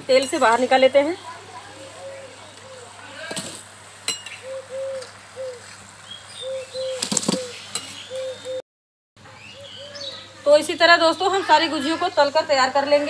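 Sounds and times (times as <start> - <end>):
dove cooing: 1.5 - 3.3, 4.4 - 5.8, 6.4 - 8.6
small birds chirping: 4.2 - 8.6, 9.2 - 13.0.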